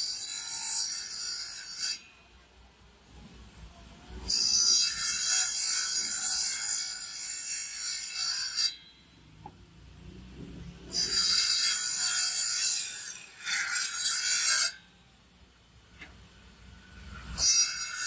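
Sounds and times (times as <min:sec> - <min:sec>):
table saw cutting wood: 0:10.9 - 0:14.8, 0:17.1 - 0:18.0.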